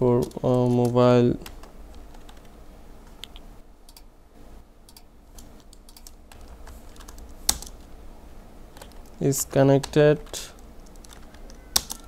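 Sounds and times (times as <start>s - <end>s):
computer keyboard typing: 0.1s - 2.5s, 4.9s - 7.9s, 8.8s - 12.0s.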